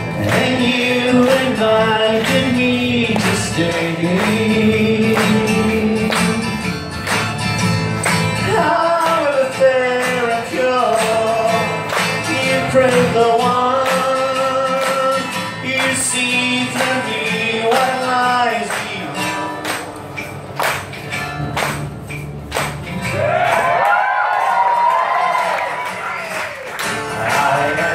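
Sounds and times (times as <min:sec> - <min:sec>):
strummed acoustic guitars: 0:00.0 - 0:23.8, 0:24.4 - 0:27.9
person singing: 0:00.2 - 0:06.6, 0:08.4 - 0:20.2, 0:27.0 - 0:27.9.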